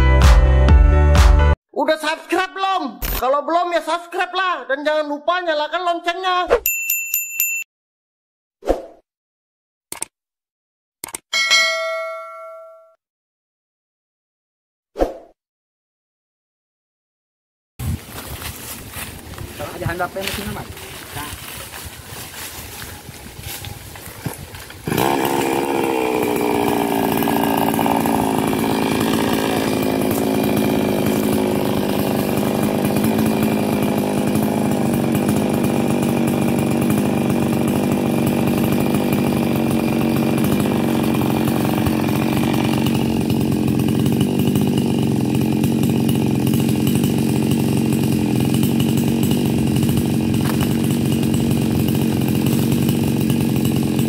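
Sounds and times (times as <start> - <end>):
small chainsaw running: 17.9 - 54.0.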